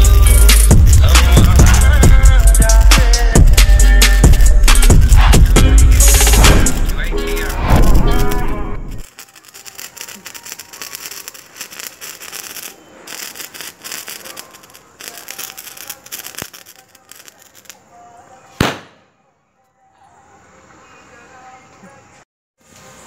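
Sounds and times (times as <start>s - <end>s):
sparklers fizzing and crackling: 0.0s - 18.9s
sharp bang: 18.6s - 19.1s.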